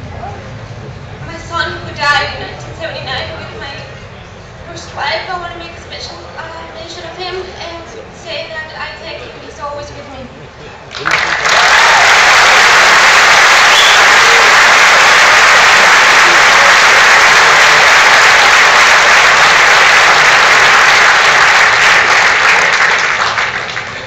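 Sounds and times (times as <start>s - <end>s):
audience applauding: 10.9s - 24.0s.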